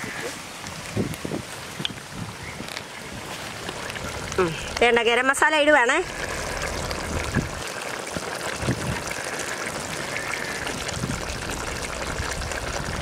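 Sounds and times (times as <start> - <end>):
curry bubbling in a pot: 3.1 - 13.0.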